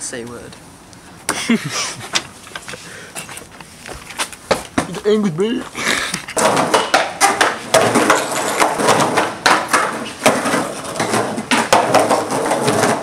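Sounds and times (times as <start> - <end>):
skateboard wheels rumbling: 5.7 - 13.0
skateboard clacking: 6.2 - 13.0.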